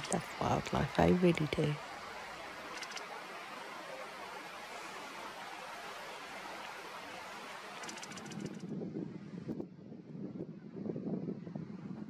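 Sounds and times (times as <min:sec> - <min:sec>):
outdoor background hiss: 0:00.0 - 0:08.6.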